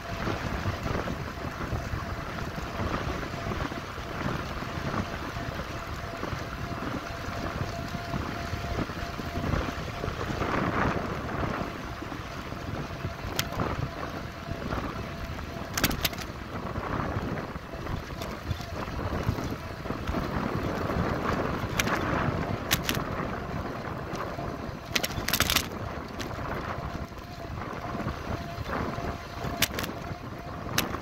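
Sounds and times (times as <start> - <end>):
rolling tyre noise: 0.0 - 31.0
wind rush on microphone: 0.0 - 31.0
bike rattling clicks: 12.6 - 31.0.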